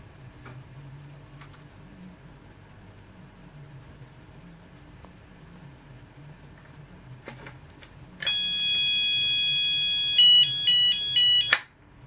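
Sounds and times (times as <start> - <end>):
alarm switch click: 8.2 - 9.2, 10.0 - 11.7
electronic alarm sounder: 8.2 - 11.6.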